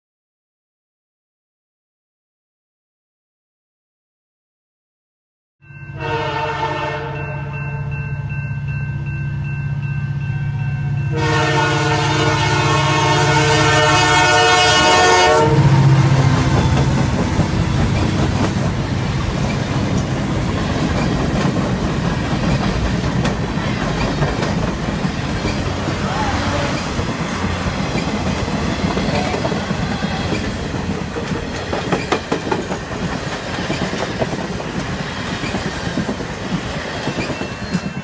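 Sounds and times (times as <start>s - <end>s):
locomotive air horn: 6.0s - 7.9s, 11.1s - 16.5s
train wheels rumbling on rails: 9.3s - 38.0s.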